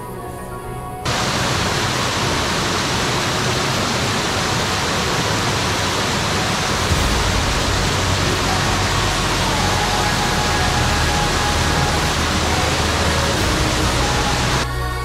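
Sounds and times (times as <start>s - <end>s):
background music: 0.0s - 1.2s, 6.6s - 15.0s
stream rushing over rocks: 1.0s - 14.7s.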